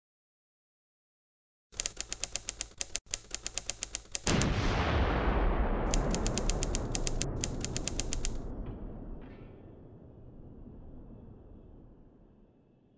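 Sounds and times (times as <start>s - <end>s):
rapid even clicking: 1.8s - 4.6s, 5.9s - 8.5s
loud low rumbling hit: 4.4s - 6.0s.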